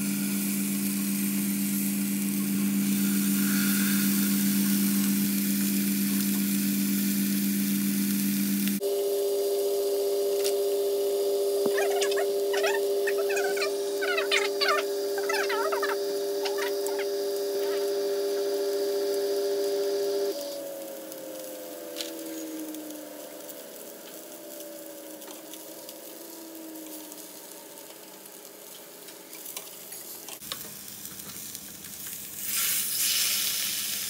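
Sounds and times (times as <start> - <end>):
steady hum: 0.0 - 24.4
fish sizzling in frying pan: 15.8 - 34.0.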